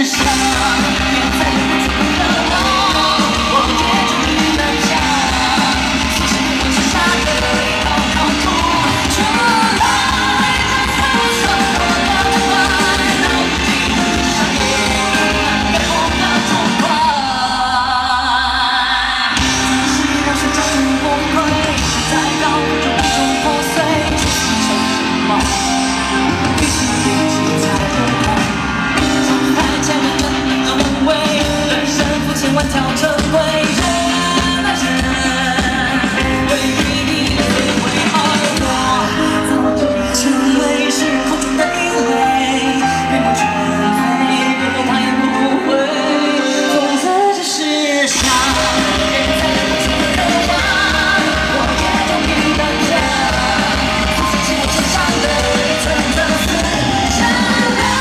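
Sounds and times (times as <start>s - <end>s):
live band playing: 0.0s - 58.0s
man singing: 0.0s - 58.0s.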